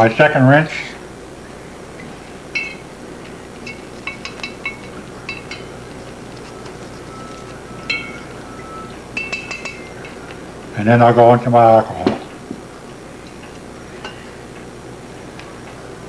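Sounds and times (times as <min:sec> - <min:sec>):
metal clinking in glass cup: 0:02.6 - 0:02.8, 0:03.6 - 0:05.9, 0:07.8 - 0:08.3, 0:09.2 - 0:10.2.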